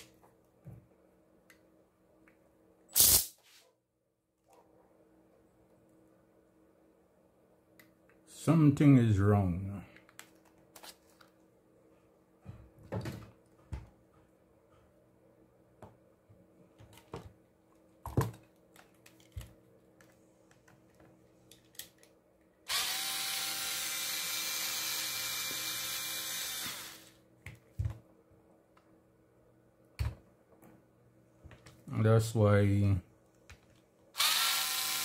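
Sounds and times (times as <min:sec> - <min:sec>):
cordless electric screwdriver running: 0:22.7 - 0:27.2, 0:34.2 - 0:35.0.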